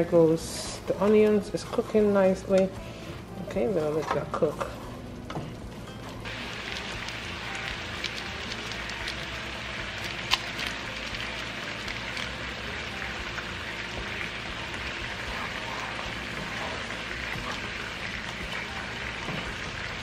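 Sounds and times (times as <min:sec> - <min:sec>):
onions sizzling in pan: 0:05.5 - 0:20.0.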